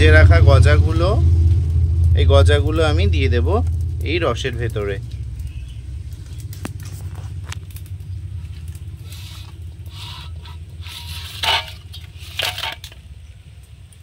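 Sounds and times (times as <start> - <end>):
low hum: 0.0 - 14.0
metal plate scraping a steel pot: 9.0 - 13.0.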